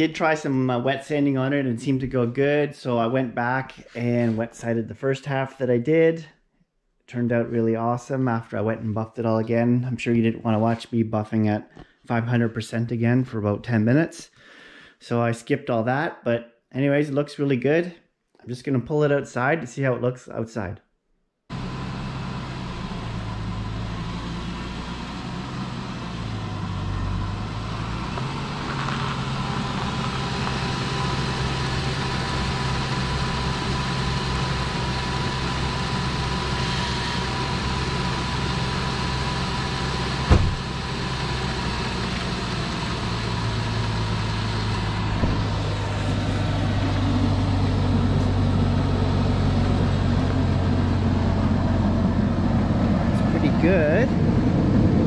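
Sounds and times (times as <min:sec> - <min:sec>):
car engine running: 0:21.5 - 0:55.0
sharp knock: 0:40.3 - 0:40.6.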